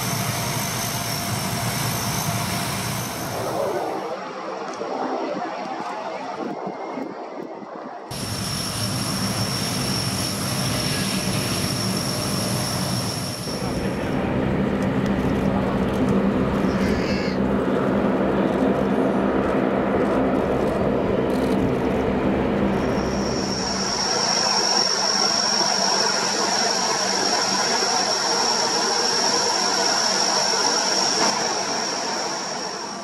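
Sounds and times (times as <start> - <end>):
high turbine whine: 0.0 - 33.0
propeller drone: 8.1 - 33.0.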